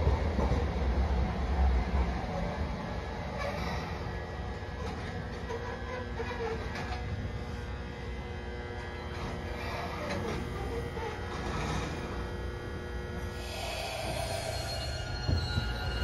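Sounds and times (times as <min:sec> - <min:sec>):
tram rumbling on rails: 0:00.0 - 0:16.0.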